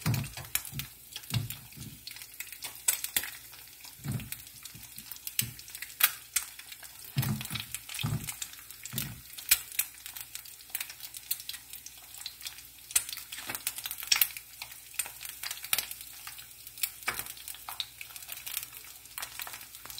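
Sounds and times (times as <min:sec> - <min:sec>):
egg sizzling in oil: 0:00.0 - 0:19.9
sharp crackles and pops: 0:00.0 - 0:19.9.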